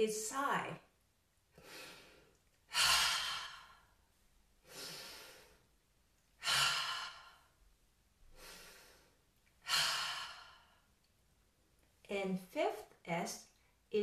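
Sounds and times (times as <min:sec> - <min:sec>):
woman breathing in: 0:01.5 - 0:04.0, 0:04.6 - 0:05.8, 0:06.4 - 0:07.6, 0:08.2 - 0:10.9.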